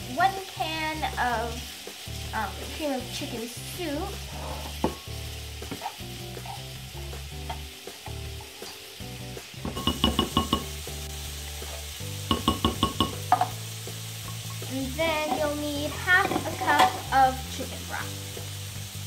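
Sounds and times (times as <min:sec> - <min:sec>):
spatula scraping tin can: 0:15.1 - 0:17.1.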